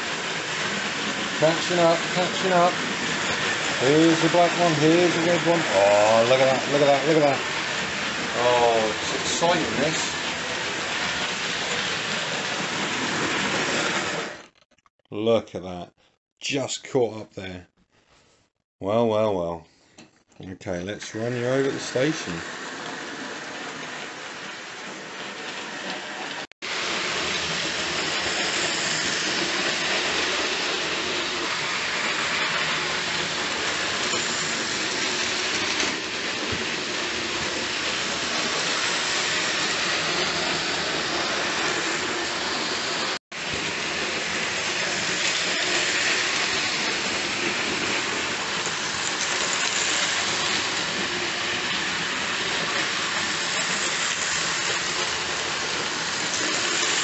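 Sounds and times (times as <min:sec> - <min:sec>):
model train whirring rattle: 0:00.0 - 0:14.2, 0:21.4 - 0:57.0.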